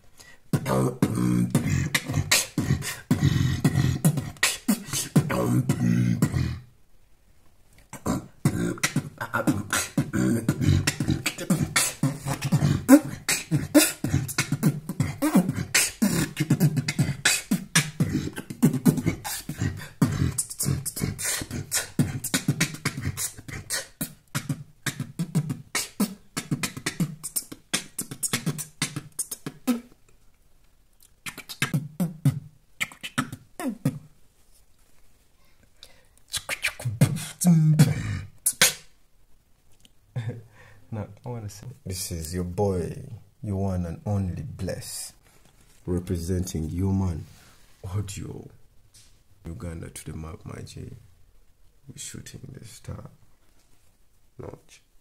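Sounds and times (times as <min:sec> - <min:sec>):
beatboxing groove: 0:00.2 - 0:06.7, 0:07.8 - 0:30.0, 0:31.0 - 0:34.1, 0:36.2 - 0:38.9.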